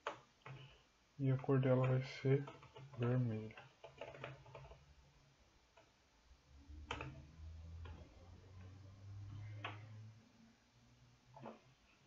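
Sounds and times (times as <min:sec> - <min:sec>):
faint low hum: 0:00.0 - 0:12.0
computer keyboard keystrokes: 0:02.4 - 0:04.8, 0:06.9 - 0:07.2.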